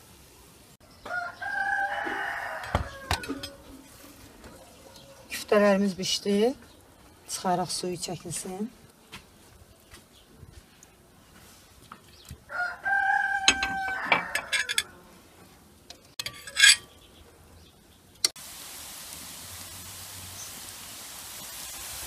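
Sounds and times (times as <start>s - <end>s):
rooster crowing: 1.0s - 3.8s, 12.5s - 15.0s
potatoes frying in oil: 18.0s - 22.0s.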